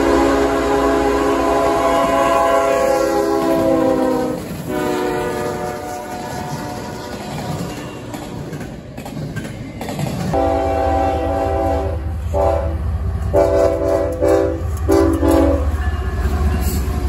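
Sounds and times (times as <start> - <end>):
locomotive air horn blasts: 0.0 - 7.2, 10.4 - 15.8
train wheels on rails: 0.0 - 17.0.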